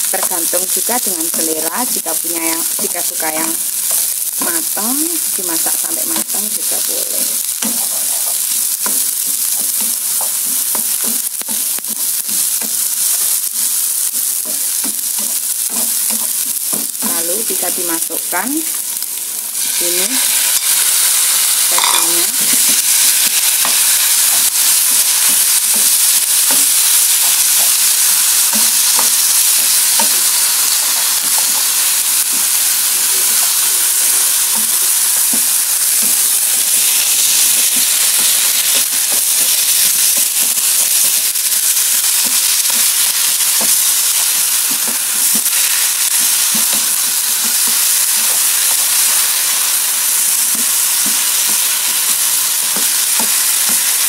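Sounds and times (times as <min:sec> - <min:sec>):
meat sizzling in oil: 0:00.0 - 0:54.0
spatula scraping pan: 0:19.5 - 0:49.6.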